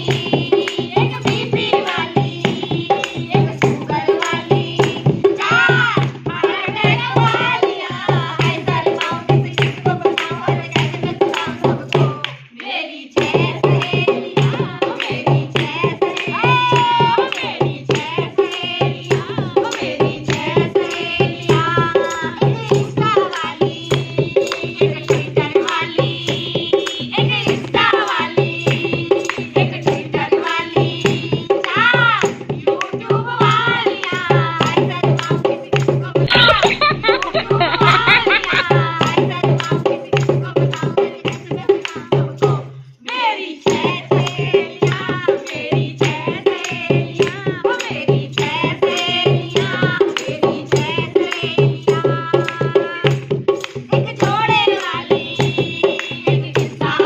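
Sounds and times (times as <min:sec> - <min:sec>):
women singing: 0:00.0 - 0:57.0
hand drum beating: 0:13.2 - 0:42.6, 0:43.7 - 0:57.0.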